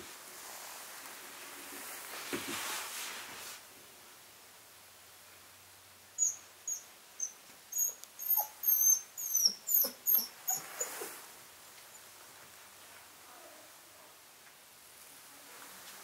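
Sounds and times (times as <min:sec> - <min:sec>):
puppy whining: 0:06.2 - 0:11.1.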